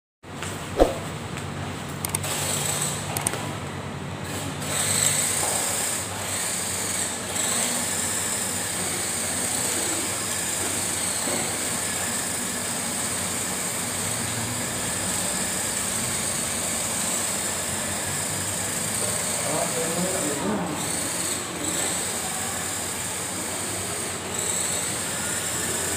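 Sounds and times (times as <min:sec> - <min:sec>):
sharp clicks: 0:02.0 - 0:02.3, 0:03.1 - 0:03.4
toy car electric motor whining: 0:02.0 - 0:03.4, 0:04.2 - 0:25.9.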